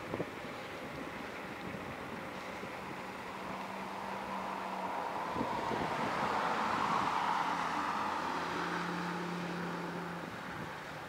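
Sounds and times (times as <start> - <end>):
car passing: 2.2 - 11.0.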